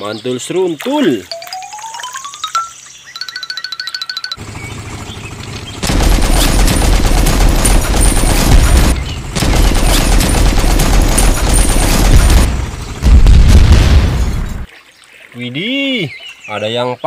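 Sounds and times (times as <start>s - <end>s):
machine-gun fire: 5.8s - 14.7s.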